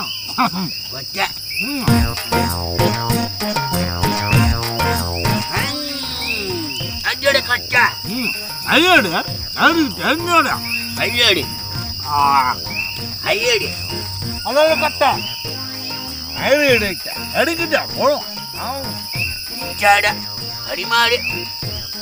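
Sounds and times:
crickets chirping: 0.0s - 22.0s
short rising and falling tones: 1.9s - 7.1s.

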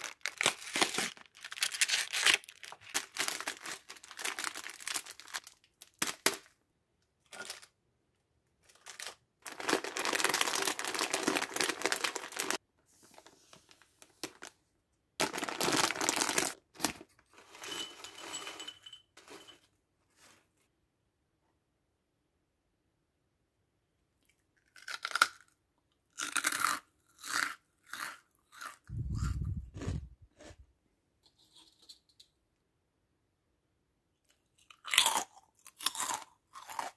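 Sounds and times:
snack packaging crinkling and tearing: 0.0s - 6.5s, 7.3s - 7.8s, 8.6s - 12.6s, 13.2s - 14.6s, 15.2s - 17.1s, 34.7s - 36.9s
crackers pouring into a bowl: 8.7s - 12.6s.

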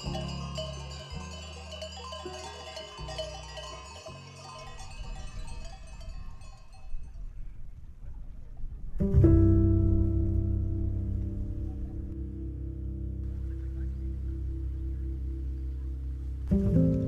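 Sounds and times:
background music with slow bass: 0.0s - 5.2s, 9.0s - 17.0s
sheep bells tinkling: 0.0s - 7.6s.

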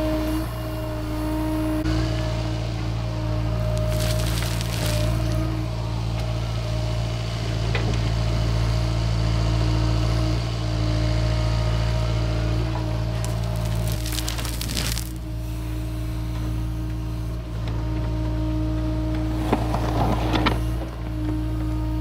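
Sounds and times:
excavator diesel engine running: 0.0s - 22.0s
soil pouring into trench: 3.4s - 5.6s, 13.0s - 16.3s.

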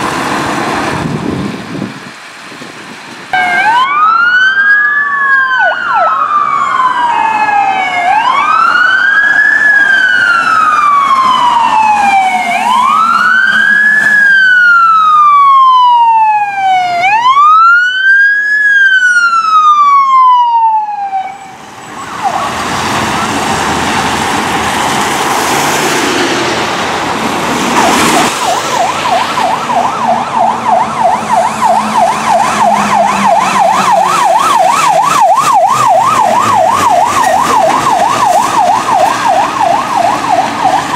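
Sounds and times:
tyres hissing on wet road: 0.0s - 3.4s, 21.6s - 29.4s
fire truck passing: 0.0s - 40.9s
wail siren: 3.3s - 24.5s, 27.6s - 40.9s
fast yelp siren: 3.4s - 23.4s, 27.8s - 40.9s.

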